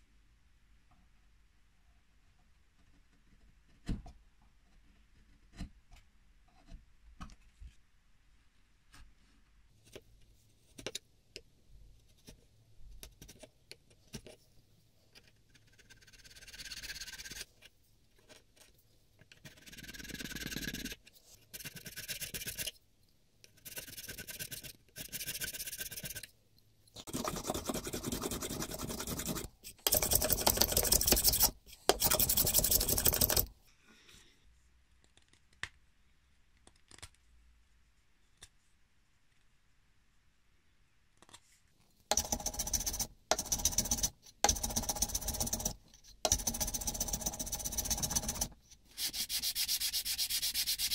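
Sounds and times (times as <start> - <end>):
chisel scraping wood: 27.1 - 33.5.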